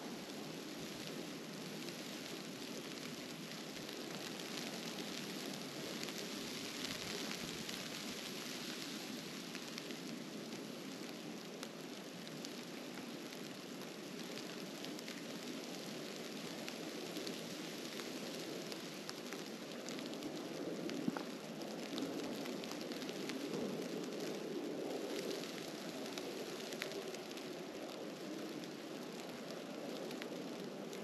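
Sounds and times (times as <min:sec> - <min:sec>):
falling snow hiss: 0:00.0 - 0:11.5.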